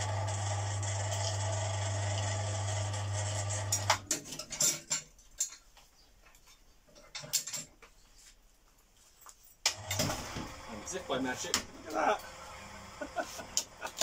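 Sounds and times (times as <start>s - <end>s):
winch motor hum: 0.0s - 4.0s, 9.7s - 14.0s
metal clinks and knocks: 4.1s - 5.8s, 6.4s - 7.9s.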